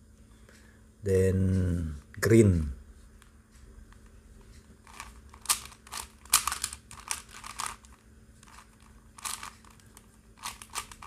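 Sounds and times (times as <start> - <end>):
puzzle cube layers clicking: 4.9 - 11.0.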